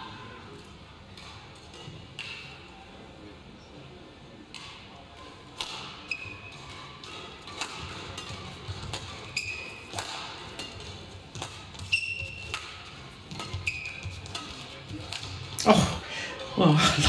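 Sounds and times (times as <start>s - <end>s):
racket striking shuttlecock: 5.6s - 15.5s
shoe squeaks on court floor: 9.2s - 10.0s, 11.8s - 12.7s, 13.3s - 14.4s.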